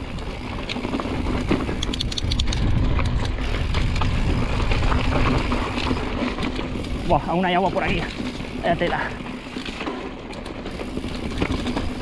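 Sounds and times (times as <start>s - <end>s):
wind rush on microphone: 0.0s - 9.3s
bike rattling clicks: 0.0s - 12.0s
bike tyres crunching on dirt: 0.0s - 12.0s.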